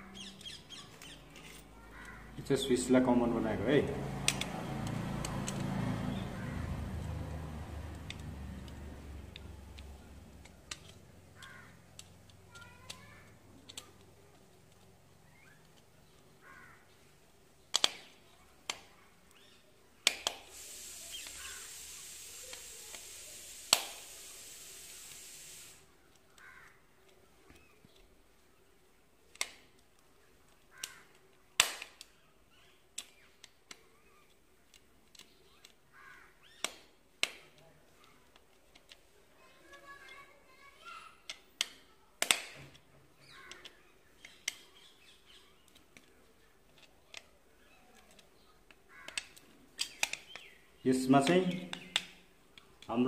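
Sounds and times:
screwdriver clicking on screws: 4.2 - 5.7, 7.9 - 15.9, 36.6 - 40.2, 41.2 - 44.6, 46.7 - 47.3, 47.9 - 50.5
bird calling: 10.8 - 11.8, 15.2 - 17.0, 20.8 - 23.0, 26.3 - 26.8, 43.2 - 45.8, 47.6 - 50.9.

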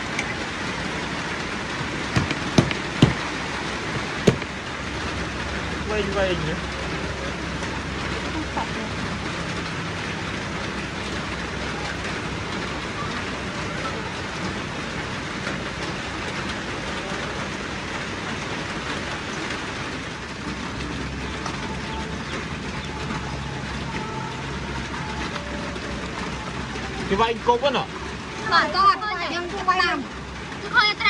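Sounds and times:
rain falling: 0.0 - 31.0.

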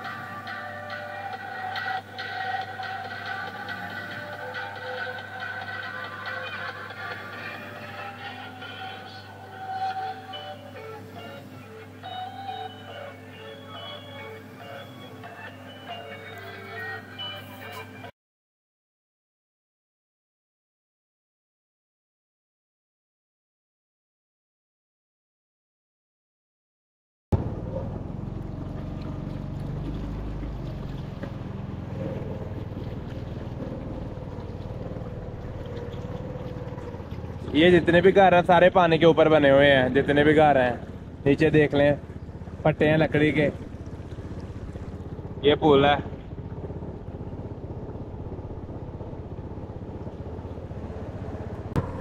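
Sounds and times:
wavering higher tone: 0.0 - 17.9
motorboat engine running: 0.0 - 18.1, 27.3 - 52.0.

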